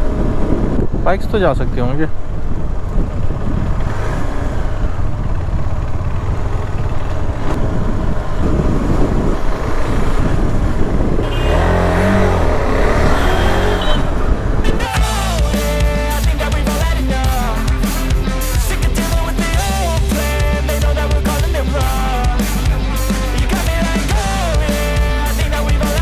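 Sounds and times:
wind rushing over microphone: 0:00.0 - 0:15.0
motorcycle engine running: 0:02.1 - 0:26.0
rock music: 0:14.6 - 0:26.0.

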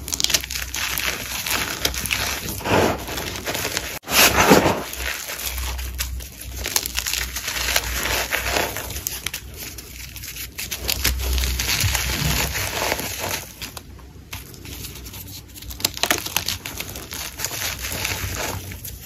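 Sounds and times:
chalk crunching in hands: 0:00.0 - 0:13.7.

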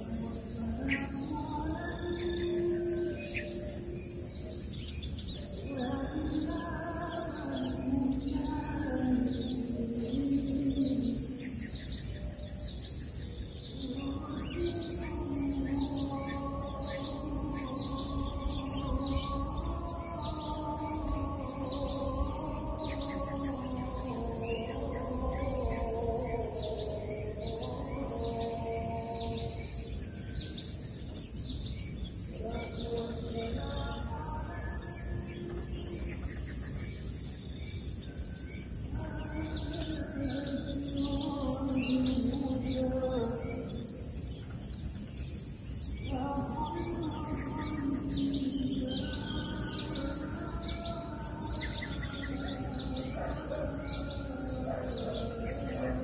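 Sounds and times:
birds chirping: 0:00.0 - 0:56.0
high insect buzz: 0:00.0 - 0:56.0
low wavering sustained tones: 0:00.0 - 0:56.0.

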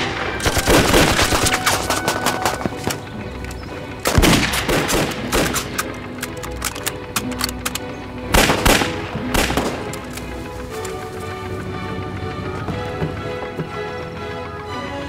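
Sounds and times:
dramatic film score: 0:00.0 - 0:15.0
rifle gunfire: 0:00.3 - 0:03.0, 0:04.0 - 0:07.7, 0:08.3 - 0:10.2.

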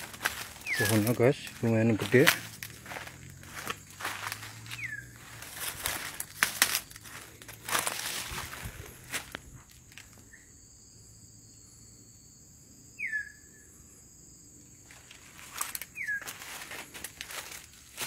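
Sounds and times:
rustling: 0:00.0 - 0:10.1
high-pitched insect drone: 0:00.0 - 0:18.0
bird whistled calls sliding down: 0:16.0 - 0:16.2.

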